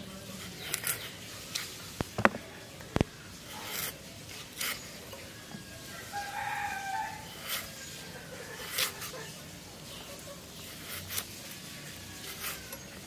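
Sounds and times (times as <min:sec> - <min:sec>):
knife cutting raw potato: 0:00.2 - 0:02.4, 0:03.0 - 0:04.9, 0:08.4 - 0:09.3, 0:10.6 - 0:11.4, 0:12.2 - 0:13.0
rooster crowing: 0:05.8 - 0:07.4.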